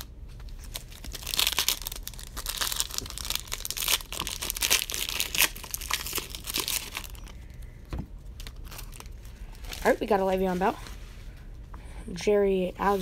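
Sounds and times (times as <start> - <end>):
plastic foil wrapper crinkling: 0.0 - 7.7, 8.3 - 10.5.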